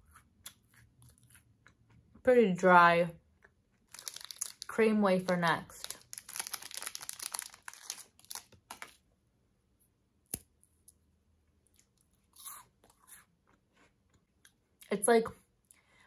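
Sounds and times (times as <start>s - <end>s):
snack wrapper crinkling and tearing: 3.8s - 9.0s
crunchy chewing: 11.7s - 14.6s.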